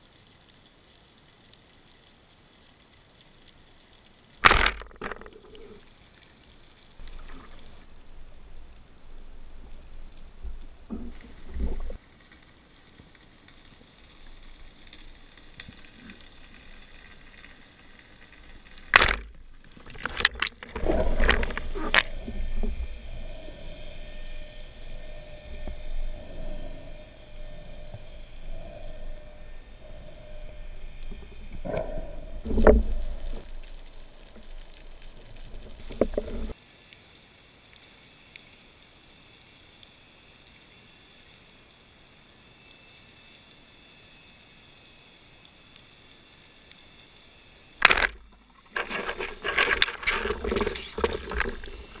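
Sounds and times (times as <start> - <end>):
faint steady hum: 0.0 - 52.0
loud crack: 4.4 - 5.2
sharp loud click underwater: 4.4 - 5.3.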